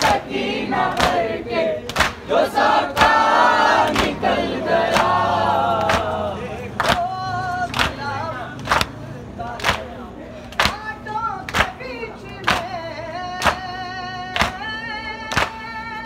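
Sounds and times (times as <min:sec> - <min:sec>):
men chanting together: 0:00.0 - 0:10.0.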